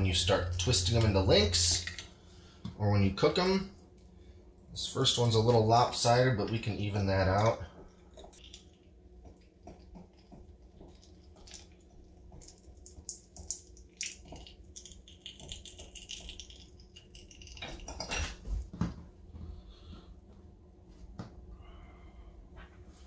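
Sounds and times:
soft squishing: 0:03.8 - 0:18.0.

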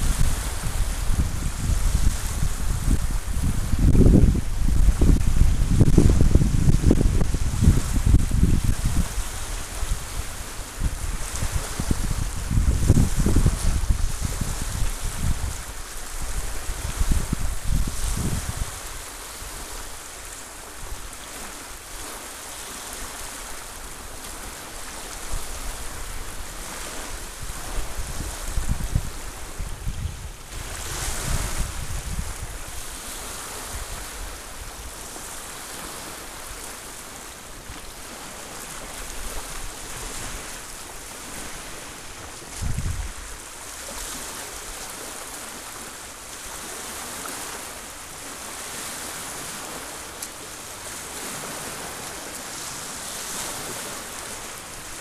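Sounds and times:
wind buffeting microphone: 0:00.0 - 0:20.0, 0:25.2 - 0:36.7, 0:37.6 - 0:44.2
small waves lapping on shore: 0:00.0 - 0:55.0.

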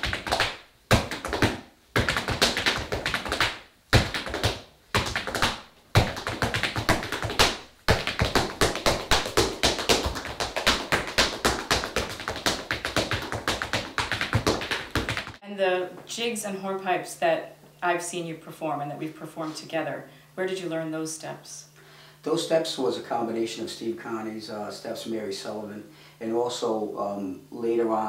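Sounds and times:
hard shoes beating on wooden floor: 0:00.0 - 0:15.4.

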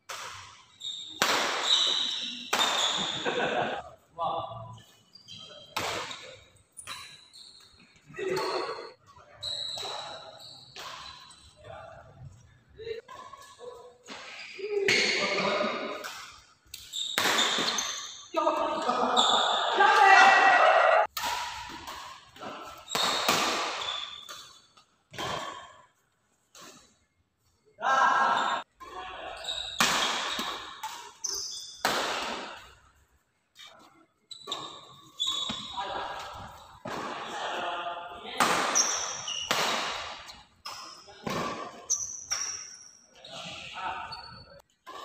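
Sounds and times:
racket hitting shuttlecock: 0:00.1 - 0:00.6, 0:01.2 - 0:03.2, 0:15.9 - 0:18.0, 0:20.4 - 0:25.7, 0:29.6 - 0:32.7, 0:38.3 - 0:42.7
shoe squeaks: 0:00.6 - 0:03.3, 0:04.7 - 0:11.7, 0:13.2 - 0:15.4, 0:16.8 - 0:18.4, 0:19.1 - 0:19.7, 0:22.5 - 0:24.8, 0:29.3 - 0:31.8, 0:33.6 - 0:36.8, 0:38.7 - 0:39.6, 0:40.2 - 0:44.7.

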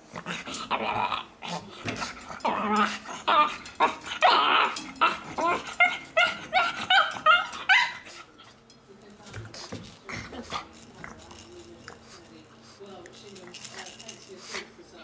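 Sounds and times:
dog whining: 0:02.4 - 0:08.3
dog yelping: 0:03.2 - 0:08.2.

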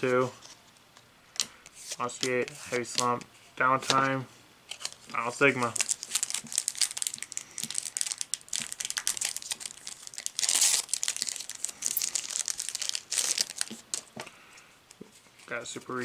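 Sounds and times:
foil wrapper crinkling: 0:04.7 - 0:14.1
foil wrapper ripping: 0:05.7 - 0:14.1.

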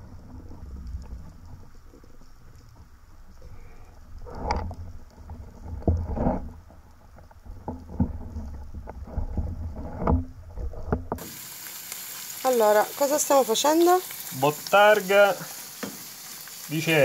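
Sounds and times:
low underwater rumble: 0:00.0 - 0:11.2
frying pan hissing: 0:11.2 - 0:17.0.

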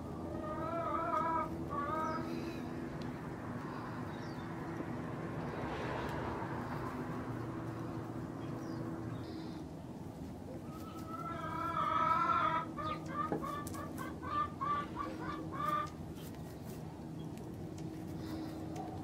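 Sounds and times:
chicken calling and clucking: 0:00.0 - 0:02.8, 0:10.5 - 0:16.8.

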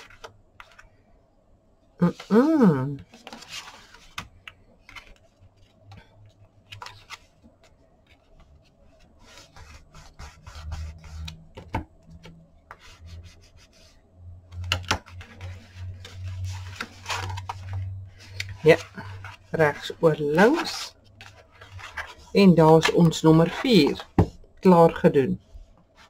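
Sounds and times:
paper rustling and scraping: 0:03.0 - 0:24.4
hands rubbing cardstock: 0:09.0 - 0:11.4.

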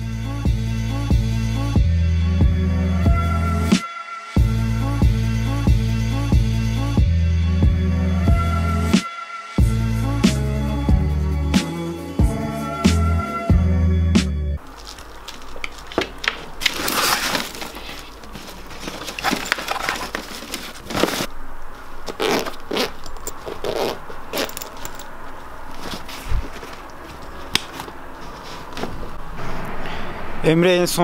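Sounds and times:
fabric bag rustling: 0:14.6 - 0:29.2
zipper pulls: 0:22.1 - 0:25.1
buckle clicks: 0:22.1 - 0:25.2.

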